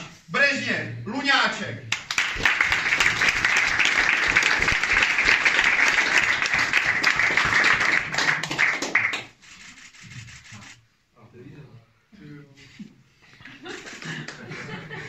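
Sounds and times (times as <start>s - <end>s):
audience clapping: 1.9s - 10.5s, 13.8s - 14.9s.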